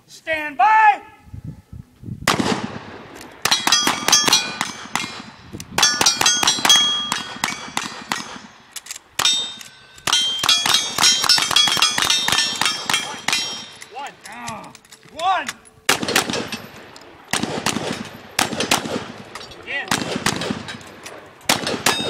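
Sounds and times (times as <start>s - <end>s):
rifle shots: 2.3s - 13.9s, 15.9s - 22.0s
steel target ringing: 3.5s - 5.2s, 5.8s - 8.6s, 9.2s - 14.0s.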